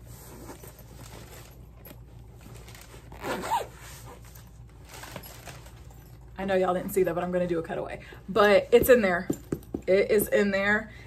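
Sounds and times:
zipper being pulled: 0.0 - 6.0
nylon fabric rustling: 0.0 - 9.2.

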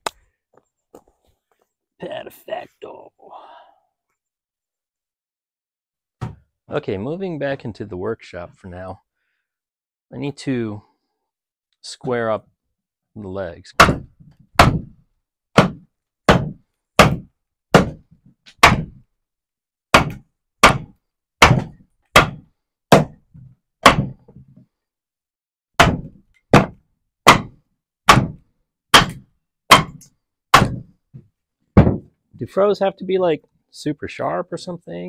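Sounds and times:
mallet whacking steel blade: 29.0 - 30.8.

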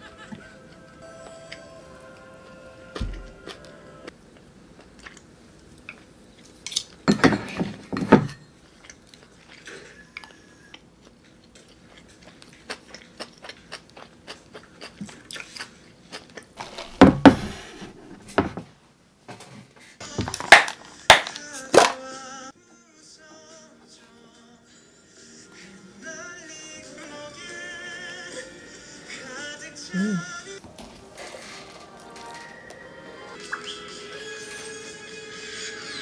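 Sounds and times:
chewing: 4.8 - 6.6, 8.6 - 16.8.

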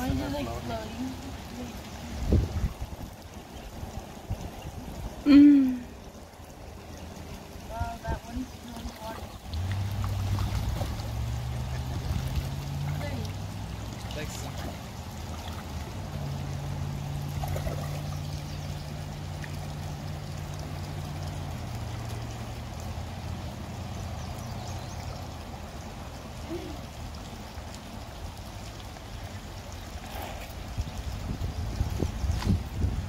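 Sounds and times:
creek water trickling: 0.0 - 33.0.

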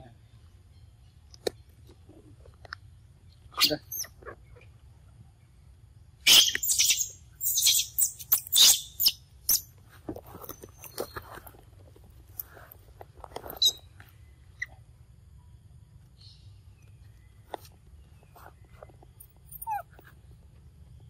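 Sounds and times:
animal squeaky chirps: 3.6 - 4.6, 6.2 - 9.6, 13.6 - 13.8, 19.5 - 20.0.

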